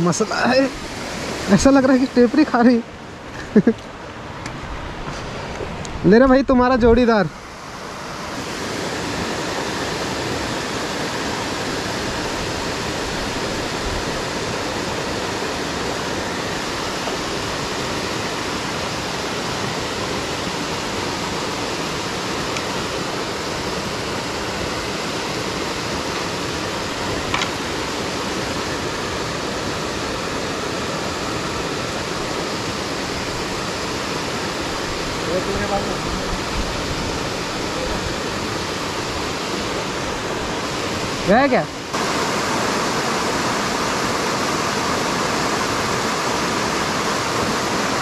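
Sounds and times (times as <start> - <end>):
water rushing down a dam: 0.0 - 3.3, 5.3 - 48.0.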